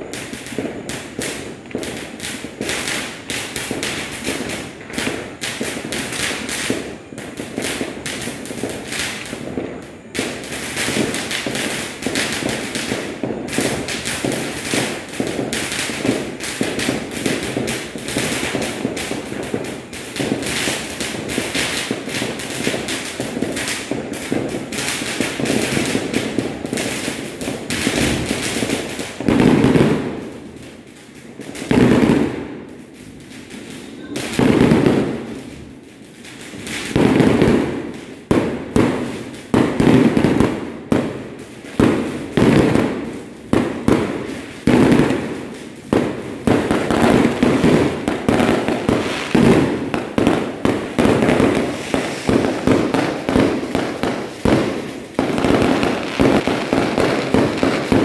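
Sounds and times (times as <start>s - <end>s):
firecrackers crackling: 0.0s - 58.0s
fireworks bangs: 0.0s - 58.0s
sharp cracks and bangs: 43.6s - 58.0s.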